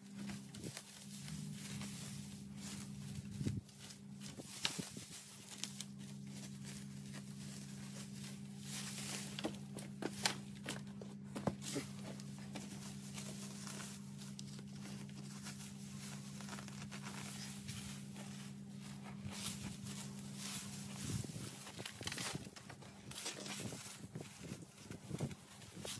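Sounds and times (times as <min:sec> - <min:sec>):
dry grass pulled and crackling: 0:00.0 - 0:25.9
steady low hum: 0:00.0 - 0:25.9.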